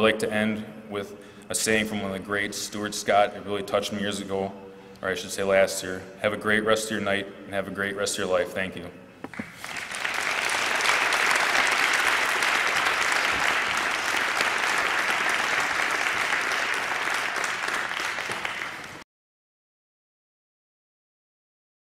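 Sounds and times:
audience applauding: 0:09.5 - 0:19.0.

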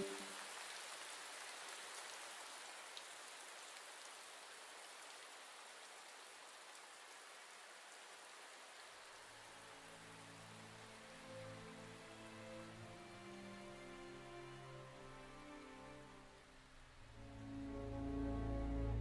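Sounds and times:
faint steady rain: 0:00.0 - 0:19.0
low sustained music notes: 0:09.4 - 0:19.0.

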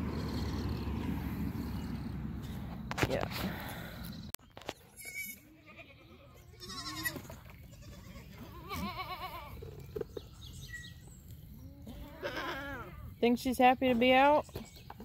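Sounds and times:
goats bleating: 0:05.0 - 0:09.6, 0:11.8 - 0:13.0.

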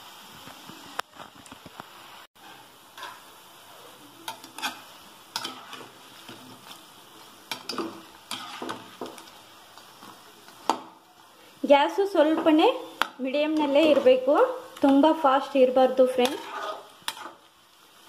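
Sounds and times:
peanuts sizzling in hot oil: 0:00.0 - 0:18.0
spoon clinking and scraping pan: 0:04.3 - 0:06.8, 0:07.5 - 0:09.4, 0:16.1 - 0:17.4.

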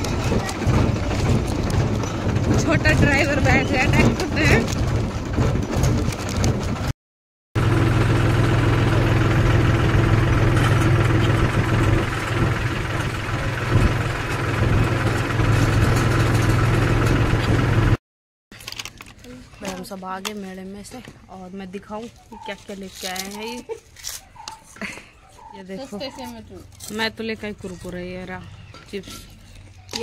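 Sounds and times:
tractor diesel engine running: 0:00.0 - 0:06.9, 0:07.6 - 0:18.0.

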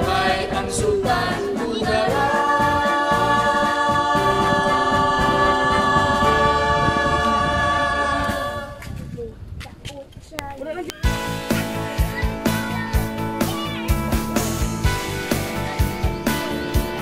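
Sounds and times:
voices holding a sung chord: 0:00.0 - 0:08.8.

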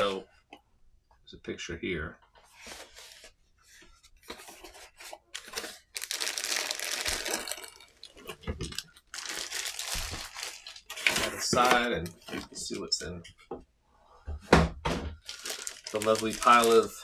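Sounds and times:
plastic bag crinkling: 0:05.4 - 0:12.7, 0:15.2 - 0:17.0.

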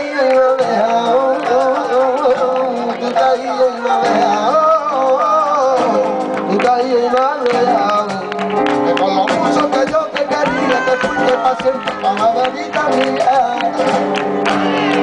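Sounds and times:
person singing: 0:00.0 - 0:15.0
strummed acoustic guitar: 0:00.0 - 0:15.0.

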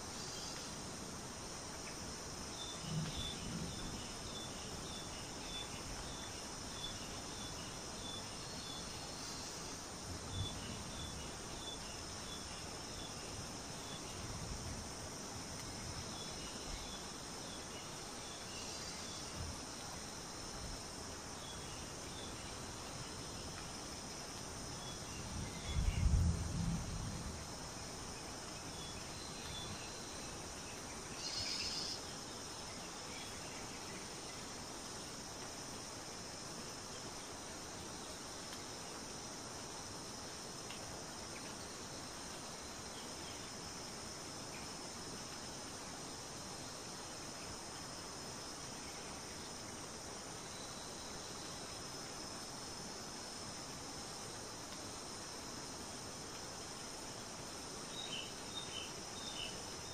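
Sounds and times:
insect chirring: 0:01.5 - 0:38.6
faint chirps: 0:31.2 - 0:32.1.

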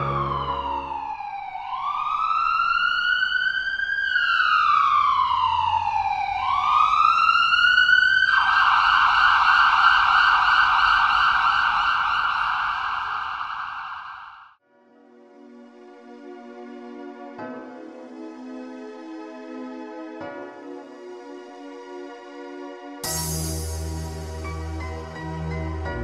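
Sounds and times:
siren wailing and yelping: 0:00.0 - 0:14.5.

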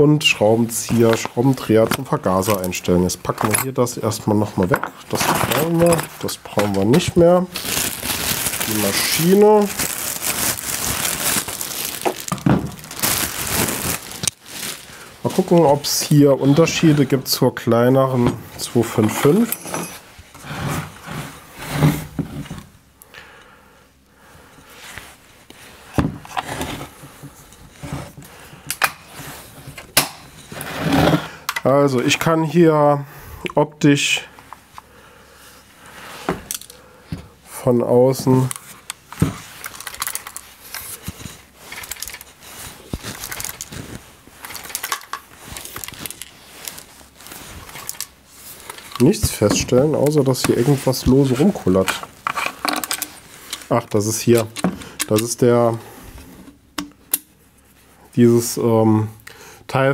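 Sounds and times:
chainsaw being handled: 0:41.7 - 0:46.9.

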